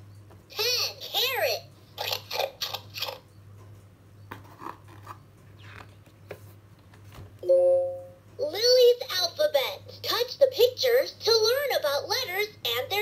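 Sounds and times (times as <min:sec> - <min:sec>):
steady low hum: 0:00.0 - 0:13.0
board book pages rustling: 0:04.3 - 0:07.4.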